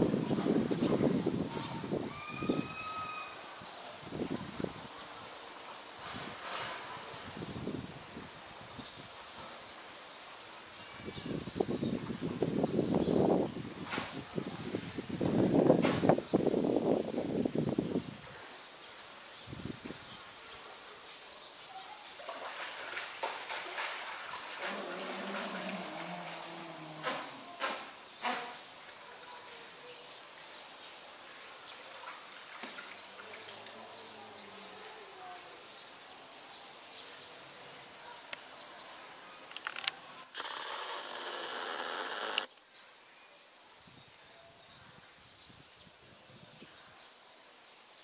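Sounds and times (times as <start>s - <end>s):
insects shrilling: 37.9s - 42.6s.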